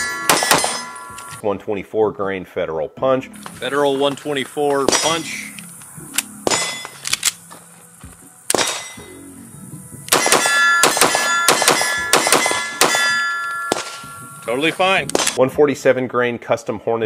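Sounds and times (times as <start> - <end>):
metallic ringing: 0.0 - 1.5, 4.6 - 5.6, 6.3 - 7.0, 8.5 - 9.3, 10.1 - 15.3
pistol shots: 0.3 - 0.9, 4.7 - 5.5, 6.2 - 7.4, 8.5 - 9.1, 10.1 - 14.2, 15.0 - 15.4.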